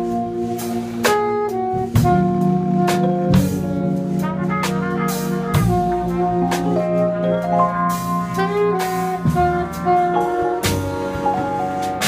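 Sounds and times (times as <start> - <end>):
drum kit cymbal strokes: 0.0 - 12.0
saxophone: 0.0 - 12.0
steady low bass line: 0.0 - 12.0
trumpet: 0.0 - 12.0.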